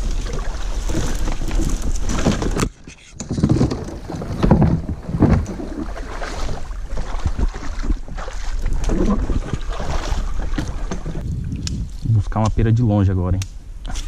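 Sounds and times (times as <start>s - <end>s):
twigs rustling and scraping: 0.0s - 5.8s
wind buffeting microphone: 3.8s - 14.0s.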